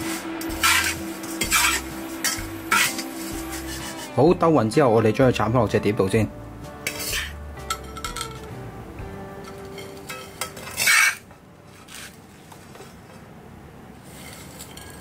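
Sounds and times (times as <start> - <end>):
metal spatula scraping wok: 0.0 - 4.2, 6.8 - 8.5, 9.3 - 12.8, 14.0 - 15.0.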